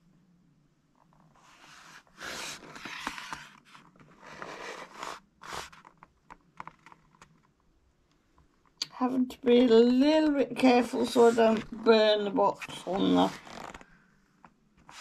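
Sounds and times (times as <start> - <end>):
cardboard box scraping against fingers: 1.4 - 6.0.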